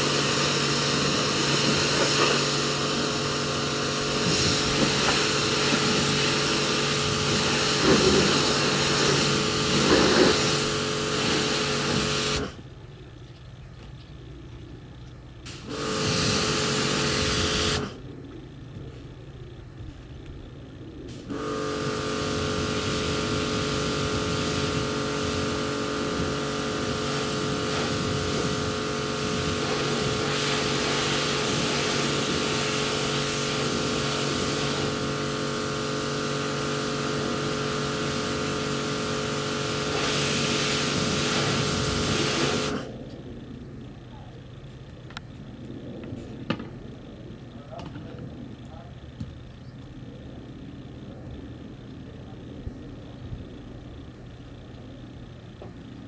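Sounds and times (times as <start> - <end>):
pressure washer running: 0.0 - 12.8, 15.4 - 18.1, 21.1 - 43.2.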